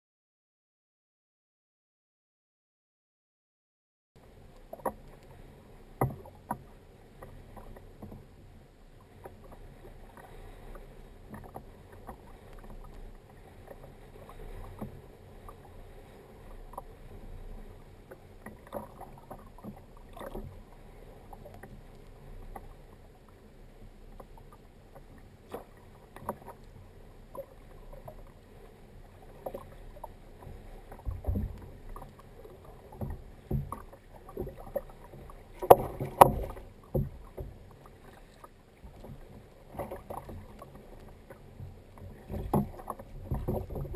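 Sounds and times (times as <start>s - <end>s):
water lapping against kayak hull: 4.2s - 43.9s
small knocks and clicks: 6.0s - 8.2s, 32.9s - 37.6s, 38.4s - 43.9s.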